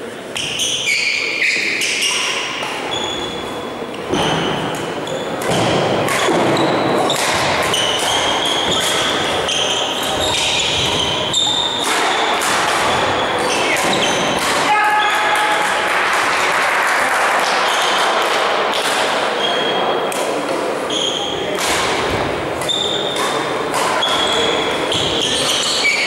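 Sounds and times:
shoes squeaking on gym floor: 0:00.4 - 0:14.4, 0:20.9 - 0:21.6, 0:22.6 - 0:23.4, 0:24.0 - 0:26.0
rackets hitting shuttlecock: 0:04.0 - 0:15.8, 0:17.4 - 0:20.7, 0:21.4 - 0:26.0.

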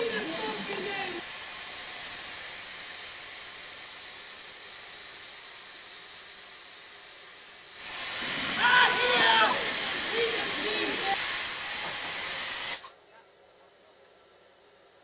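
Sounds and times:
steam locomotive hissing: 0:00.0 - 0:12.9.

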